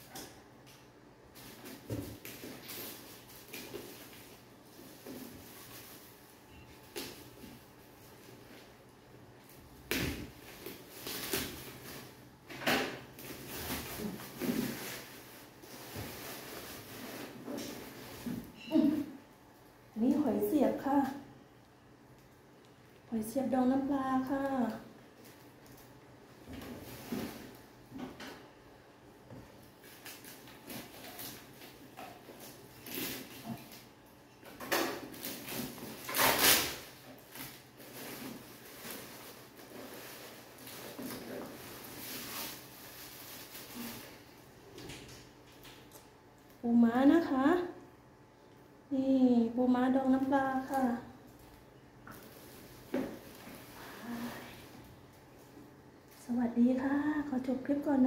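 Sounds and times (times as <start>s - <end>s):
plastic bags rustling: 1.3s - 8.8s, 9.4s - 19.0s, 29.6s - 44.7s, 50.1s - 55.5s
bagged jars rustling in a box: 35.1s - 44.3s.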